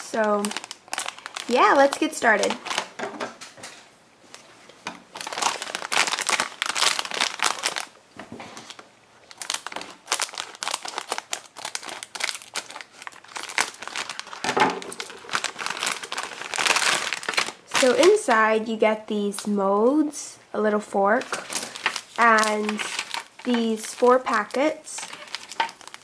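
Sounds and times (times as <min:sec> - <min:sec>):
plastic wrapper crinkling: 0:00.0 - 0:03.0, 0:05.1 - 0:18.6, 0:21.1 - 0:26.0
scissors cutting plastic: 0:25.0 - 0:26.0.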